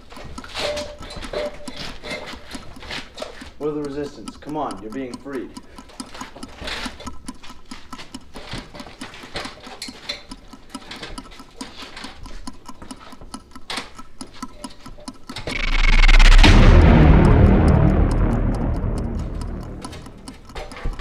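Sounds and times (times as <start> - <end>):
clock-like ticking: 0.0 - 21.0
loud deep boom: 15.5 - 20.4.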